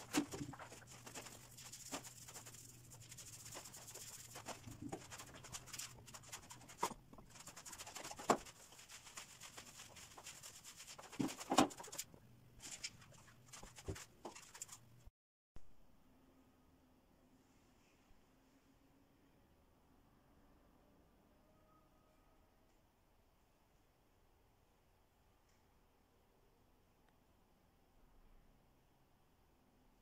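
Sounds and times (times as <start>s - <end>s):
paint roller rolling on wall: 0.0s - 14.9s.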